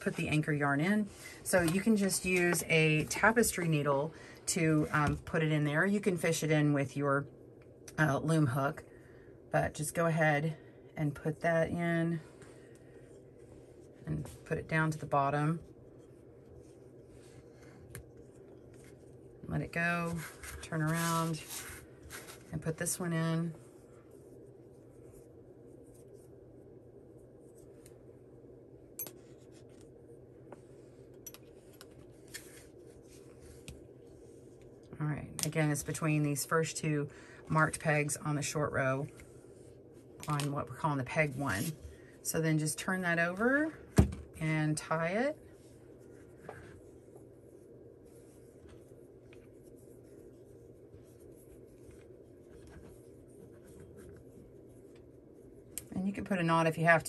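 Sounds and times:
low room hum: 0.0 - 57.0
yarn rustling and scraping: 13.2 - 23.4
yarn rubbing with small clicks: 44.4 - 57.0.

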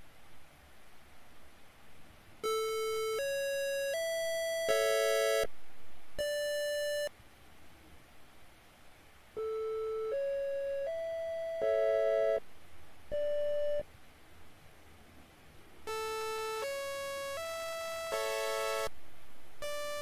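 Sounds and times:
soft triangle wave notes: 2.4 - 5.5, 6.2 - 7.1, 9.4 - 12.4, 15.9 - 18.9.

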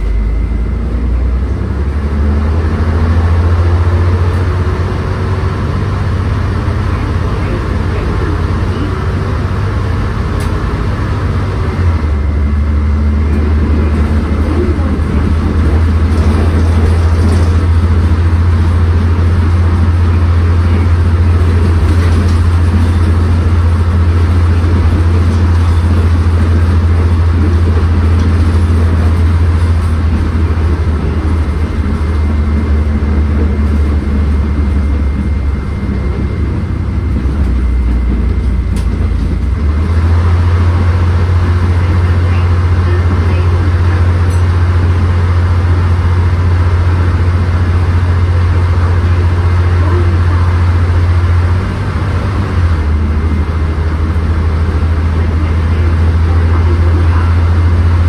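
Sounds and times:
bus diesel engine drone: 0.0 - 58.0
road noise: 0.0 - 58.0.

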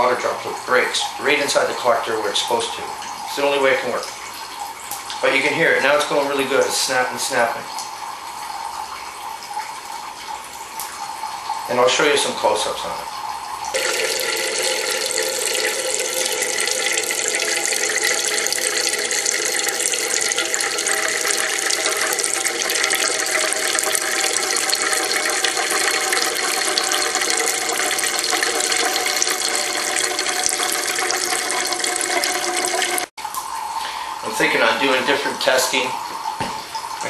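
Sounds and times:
water streams splashing into metal cans: 13.6 - 37.0.

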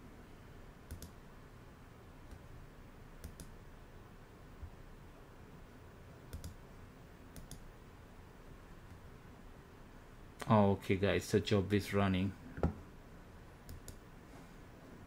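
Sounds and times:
low room hiss: 0.0 - 15.0
mouse and keyboard clicks: 0.9 - 1.2, 3.2 - 3.5, 6.3 - 6.6, 7.3 - 7.6, 13.7 - 14.0.

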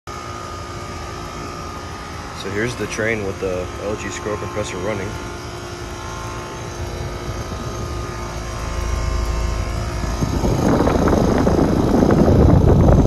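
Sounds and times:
air conditioner unit humming: 0.1 - 13.0
fan air buffeting microphone: 0.1 - 13.0.

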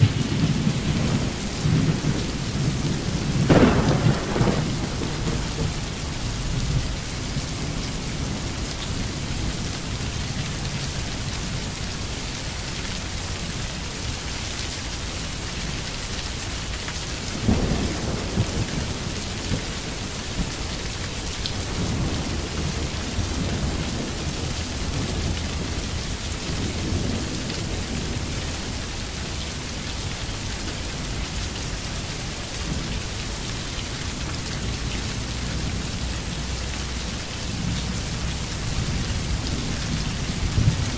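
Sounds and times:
loud thunderclap: 0.0 - 6.8, 17.4 - 20.5
low rolling thunder: 0.0 - 9.8, 17.3 - 29.4, 34.1 - 40.9
steady rain: 0.0 - 40.9.

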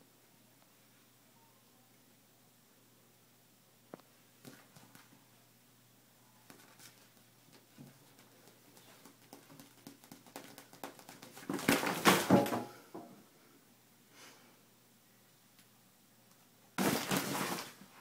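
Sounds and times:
kitten paws tapping and scrabbling: 4.4 - 5.2, 6.4 - 12.6.

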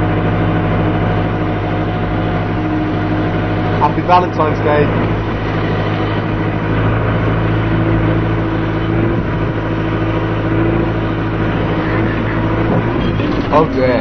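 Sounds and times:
loader engine running steadily: 0.0 - 14.0.

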